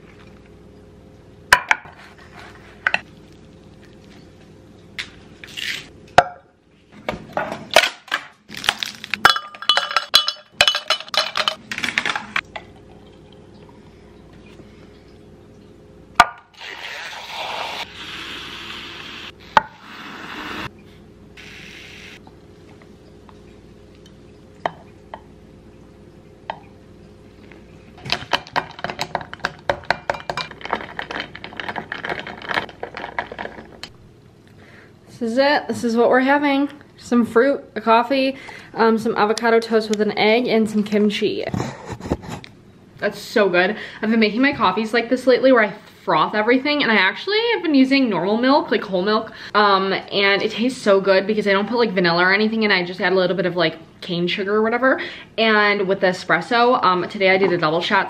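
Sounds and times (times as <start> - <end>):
faint steady hum: 0.0 - 58.0
ice cubes cracking out of tray: 7.8 - 9.2.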